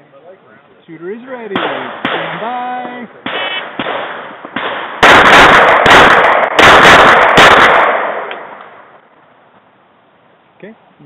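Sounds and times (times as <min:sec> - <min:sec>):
handgun shots echoing: 0:01.5 - 0:02.6, 0:03.2 - 0:08.8.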